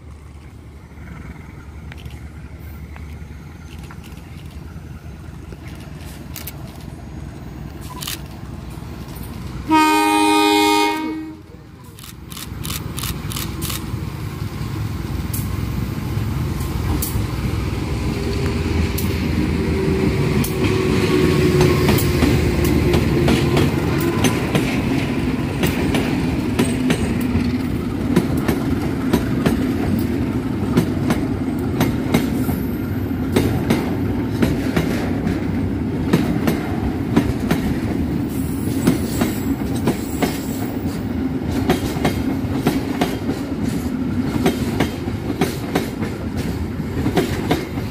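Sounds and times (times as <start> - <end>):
diesel locomotive engine: 0.0 - 47.9
wheels clicking over rail joints: 21.5 - 32.6.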